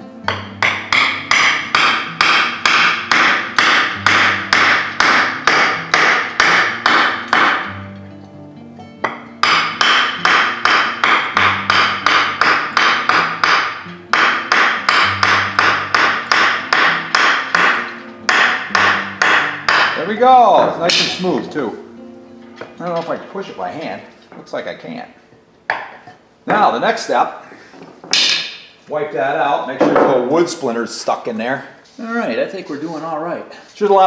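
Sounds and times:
hammer striking wooden block: 0.3s - 7.8s, 9.0s - 20.1s, 20.7s - 21.6s, 25.7s - 26.0s, 28.0s - 28.7s.

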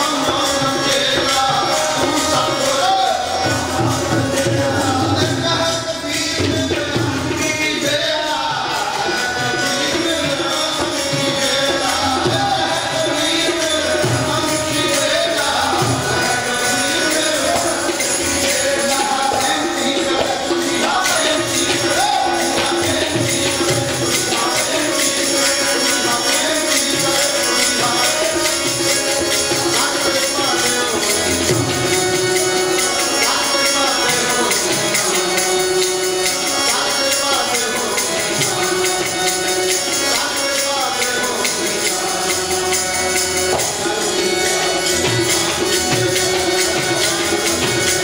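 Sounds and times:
tabla playing: 0.0s - 48.0s
voices singing a hymn: 0.0s - 48.0s.

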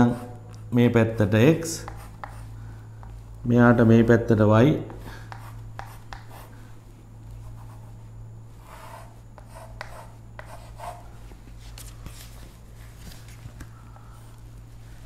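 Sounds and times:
chalk scratching on blackboard: 1.8s - 2.5s, 4.9s - 6.5s, 8.6s - 11.1s.

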